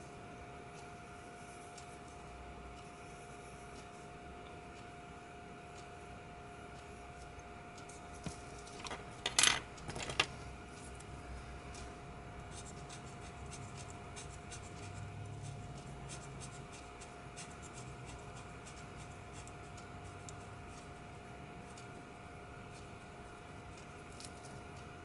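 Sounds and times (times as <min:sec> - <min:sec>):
pencil scratching on paper: 0:12.5 - 0:20.9.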